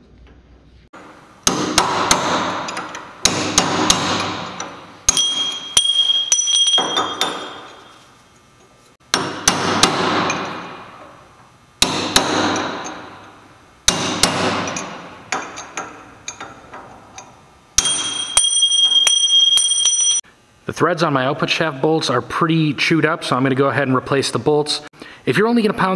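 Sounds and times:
hammer striking metal: 1.0 - 8.0, 9.1 - 11.0, 11.8 - 13.3, 13.9 - 16.6, 17.8 - 20.2
high metallic ring: 5.1 - 8.2, 17.8 - 20.2.

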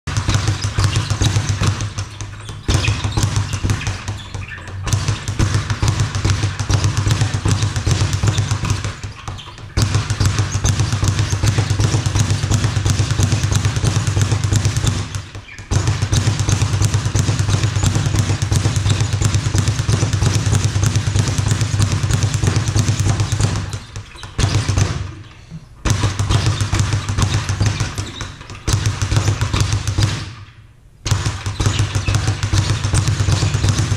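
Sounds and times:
speed bag drumming thuds: 0.0 - 33.9.

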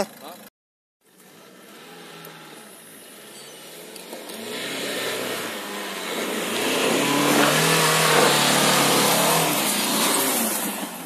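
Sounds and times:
diesel engine revving hard: 1.5 - 11.0
tyres scrabbling and spraying dirt: 3.4 - 11.0.

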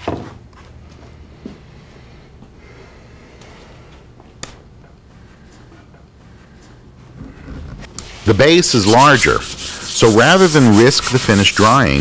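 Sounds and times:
gloved hand rubbing wood: 6.4 - 12.0.

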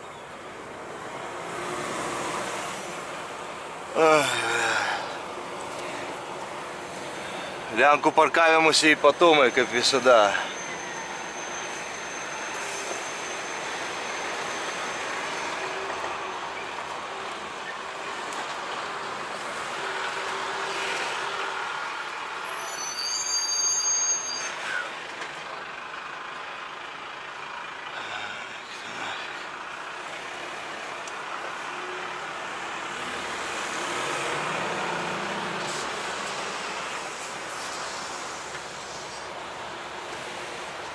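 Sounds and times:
high-pitched squeal: 9.4 - 16.7, 22.3 - 25.0
truck engine running: 24.9 - 31.6.

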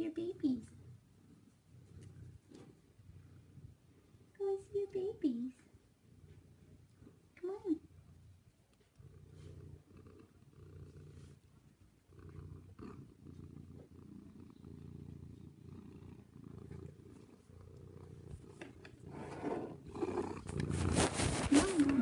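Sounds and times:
cat purring: 0.0 - 22.0
rustling and bumping: 20.5 - 22.0.

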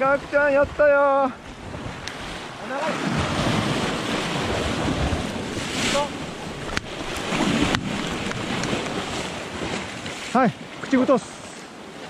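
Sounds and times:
wind buffeting microphone: 0.0 - 10.3
waves breaking on rocky shore: 0.0 - 12.0.

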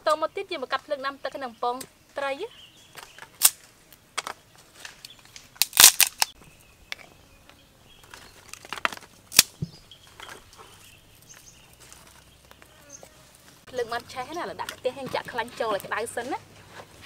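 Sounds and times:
sticks cracking on fire: 2.9 - 7.1, 8.0 - 12.7.

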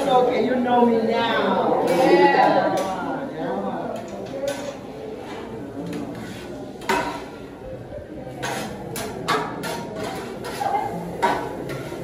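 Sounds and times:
murmur of voices: 0.0 - 12.0
metal spatulas clacking on griddle: 4.0 - 4.8, 5.8 - 7.4, 8.4 - 12.0.

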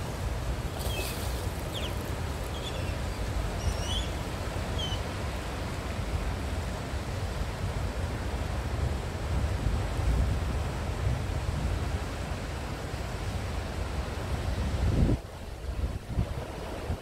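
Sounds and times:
water moving around boat: 0.0 - 8.4
wind on microphone: 0.0 - 17.0.

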